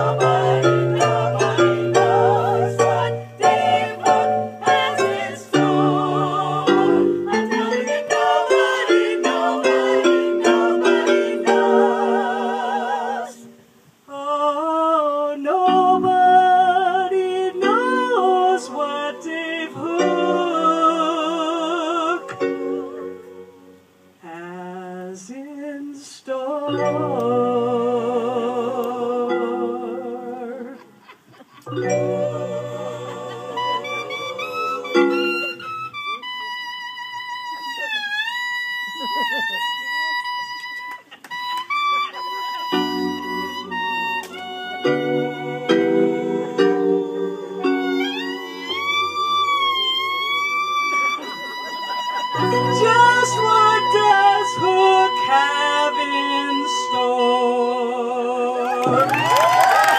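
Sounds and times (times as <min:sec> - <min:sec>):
digital piano: 0:00.0 - 0:13.6, 0:15.7 - 0:24.1, 0:26.7 - 0:31.0, 0:31.6 - 0:36.2, 0:42.4 - 0:57.6
group of people singing: 0:00.0 - 0:13.6, 0:14.2 - 0:25.2, 0:31.7 - 0:35.9, 0:43.7 - 0:50.3, 0:52.4 - 0:59.2
clarinet: 0:00.0 - 0:14.0, 0:26.6 - 0:59.9.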